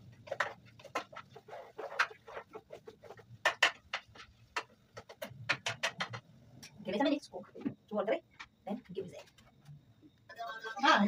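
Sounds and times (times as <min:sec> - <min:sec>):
spoon stirring and scraping in pot: 0:00.0 - 0:06.8.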